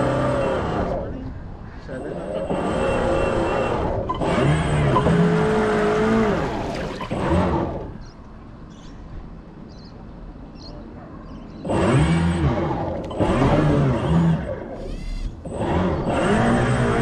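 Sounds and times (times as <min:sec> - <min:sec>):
small electric motor whining: 0:11.7 - 0:17.0.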